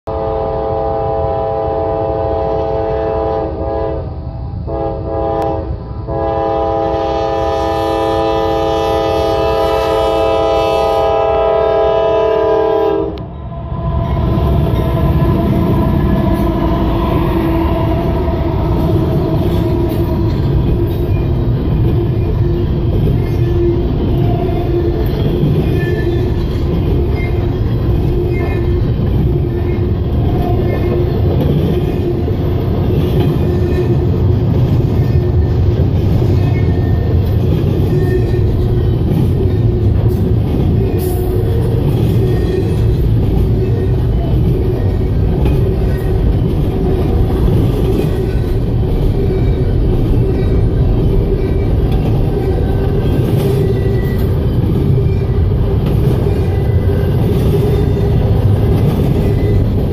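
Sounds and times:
diesel locomotives passing: 0:00.0 - 0:59.9
train cars rumbling over rails: 0:00.0 - 0:59.9
locomotive air horn blasts: 0:00.1 - 0:20.9.

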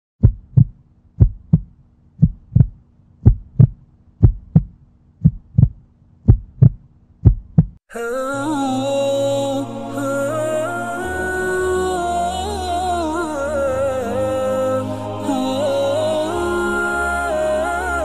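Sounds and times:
heartbeat thumps: 0:00.2 - 0:07.8
music with singing voice: 0:07.9 - 0:18.0.

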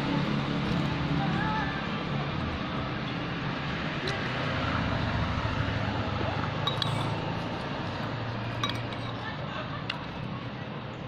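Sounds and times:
steady background noise: 0:00.0 - 0:11.0
cutlery clinking on ceramic bowl: 0:06.6 - 0:07.3, 0:08.6 - 0:09.2.

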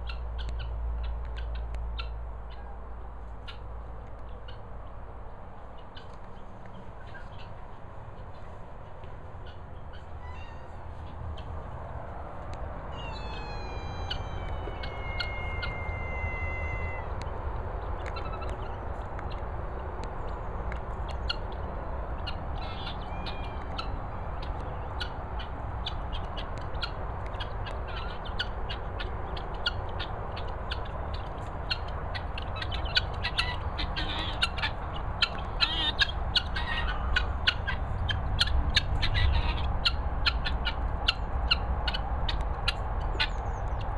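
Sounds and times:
guinea fowl calling: 0:07.0 - 0:07.6, 0:08.2 - 0:11.6, 0:12.9 - 0:17.3, 0:21.1 - 0:43.7.

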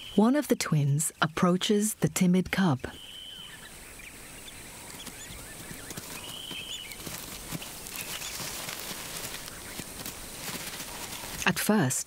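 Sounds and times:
steady outdoor hiss: 0:00.0 - 0:12.0
high bird chirps: 0:02.8 - 0:08.5
dry leaves rustling underfoot: 0:04.8 - 0:11.6.

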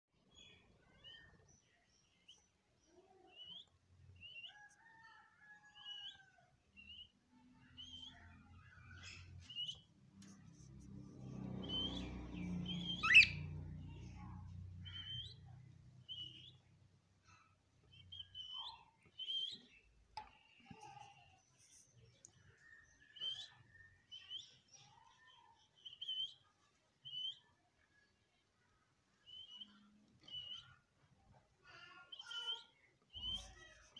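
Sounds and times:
budgerigars chirping: 0:11.6 - 0:13.5
budgerigar warbling: 0:12.8 - 0:13.4.

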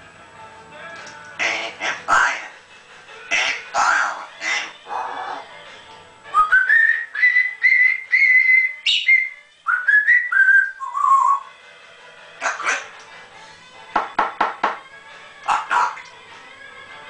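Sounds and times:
parrot whistling notes: 0:06.3 - 0:11.5.

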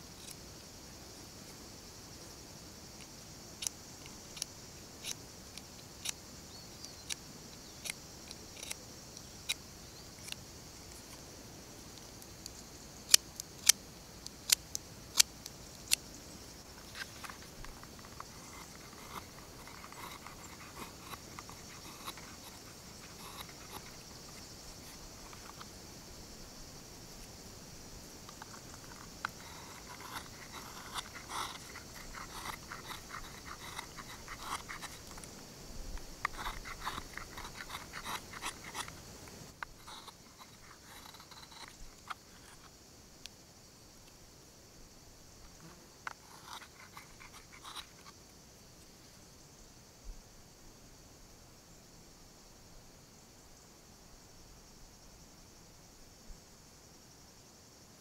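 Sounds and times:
high-pitched hiss: 0:00.0 - 0:58.0
knife carving wood: 0:03.6 - 0:06.2, 0:06.9 - 0:09.6, 0:12.0 - 0:25.8, 0:28.2 - 0:42.7, 0:46.1 - 0:48.2
knife scraping wood shavings: 0:16.8 - 0:25.6, 0:28.3 - 0:35.3, 0:36.2 - 0:39.0, 0:39.7 - 0:42.6, 0:46.1 - 0:48.1.

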